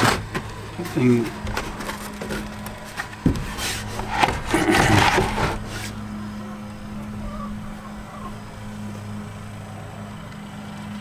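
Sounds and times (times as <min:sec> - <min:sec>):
steady low hum: 0:00.0 - 0:11.0
rustling and knocking on wooden box: 0:01.3 - 0:05.8.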